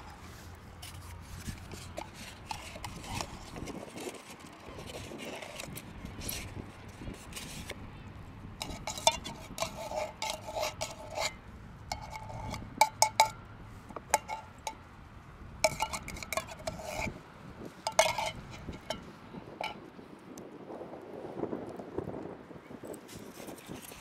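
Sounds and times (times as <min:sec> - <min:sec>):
metal spoon scraping tin can: 0:00.8 - 0:07.8, 0:08.6 - 0:13.4, 0:14.0 - 0:14.8, 0:15.6 - 0:17.2, 0:17.8 - 0:19.8.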